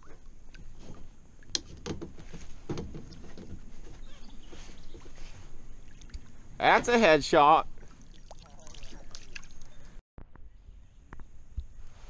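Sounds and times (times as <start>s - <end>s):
low water noise: 0.0s - 12.0s.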